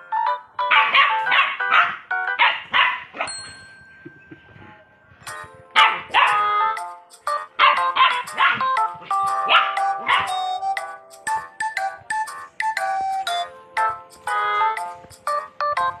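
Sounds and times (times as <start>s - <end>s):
dogs barking and yapping: 0.6s - 3.4s, 5.7s - 6.7s, 7.5s - 10.8s.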